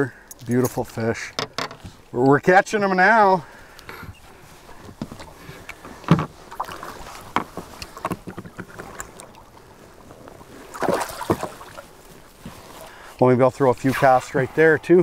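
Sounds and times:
water splashing against a boat: 0.4s - 15.0s
fish splashing: 5.3s - 13.0s.

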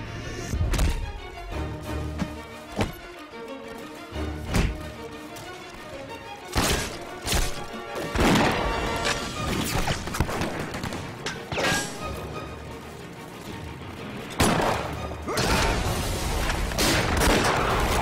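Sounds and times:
film score music: 0.0s - 18.0s
gunshots: 14.4s - 18.0s.

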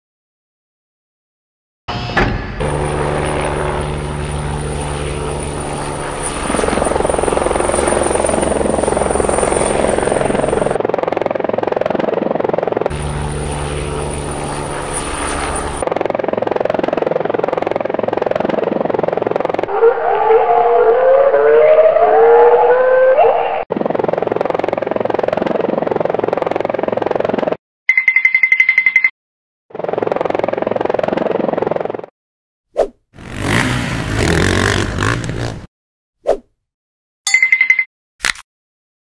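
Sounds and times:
helicopter turbine and rotor: 2.0s - 20.2s, 23.0s - 27.6s, 29.7s - 32.1s, 33.2s - 35.7s.

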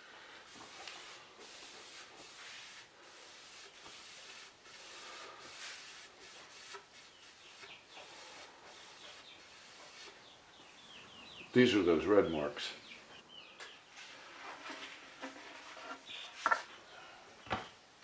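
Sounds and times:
brush swishing strokes on wood: 0.0s - 10.4s.

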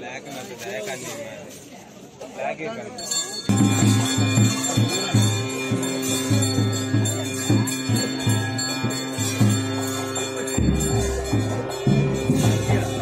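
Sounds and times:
jingling bells: 2.5s - 13.0s
low pulsing pitched tone: 3.5s - 13.0s.

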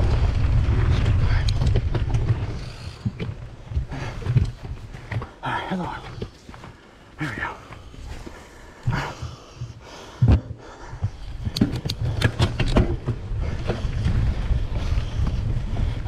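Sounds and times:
wind rumble on microphone: 0.0s - 5.3s, 10.9s - 16.0s
bike rolling over dirt: 0.0s - 7.0s, 11.0s - 16.0s
bike clicks and rattles: 0.9s - 5.4s, 11.0s - 16.0s.

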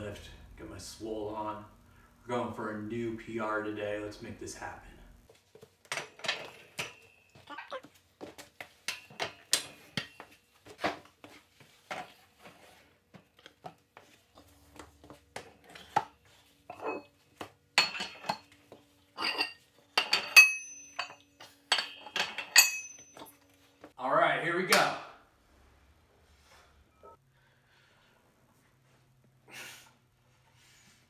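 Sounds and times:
metal plates clinking on barbell: 19.2s - 23.4s
ringing metal clanks: 19.2s - 23.4s.

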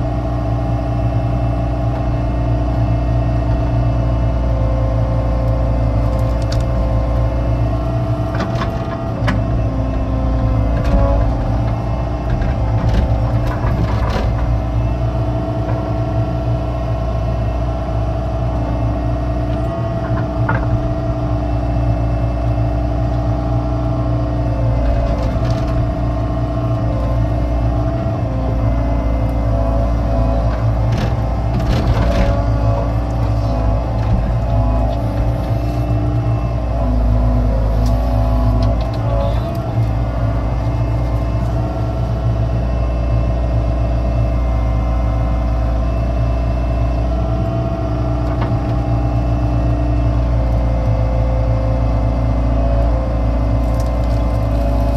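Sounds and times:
excavator diesel engine running: 0.0s - 54.9s
digging knocks and clanks: 8.1s - 14.8s, 29.6s - 41.8s.

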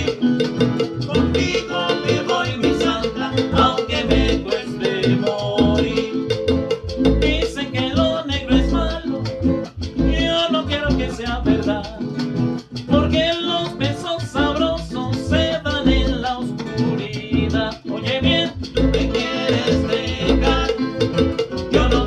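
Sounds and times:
classical guitar strumming: 0.0s - 22.0s
man singing: 0.0s - 22.0s.

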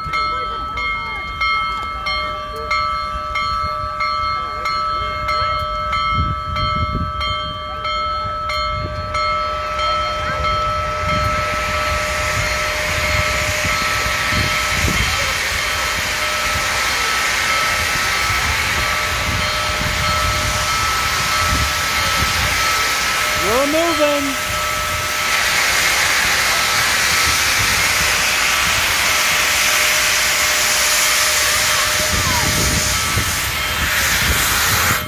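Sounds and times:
bell ringing: 0.0s - 25.5s
steam locomotive hissing steam: 2.6s - 35.0s.

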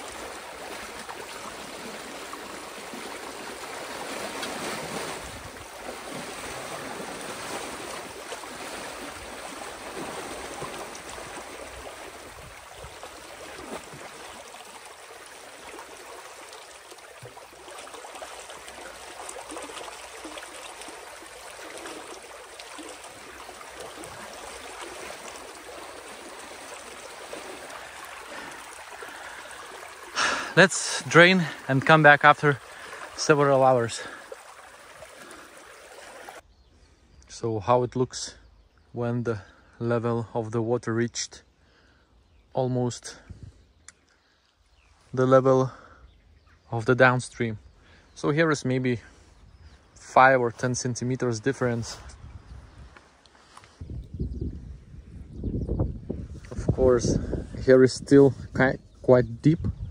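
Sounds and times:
water rushing through a channel: 0.0s - 36.4s.

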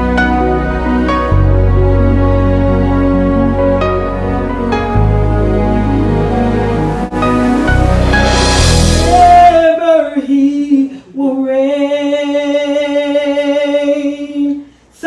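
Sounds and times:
instrumental music: 0.0s - 9.9s
woman singing sustained notes: 8.9s - 14.4s.

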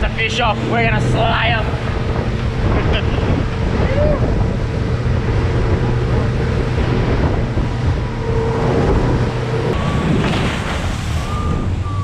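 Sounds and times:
boat engine drone: 0.0s - 12.0s
wind buffeting microphone: 0.0s - 12.0s.

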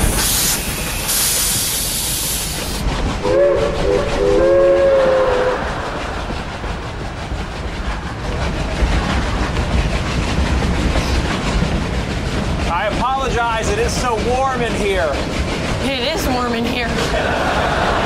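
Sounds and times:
loud hiss of steam: 0.0s - 6.8s
low engine rumble: 0.0s - 18.0s
steam whistle blowing: 3.2s - 5.6s.

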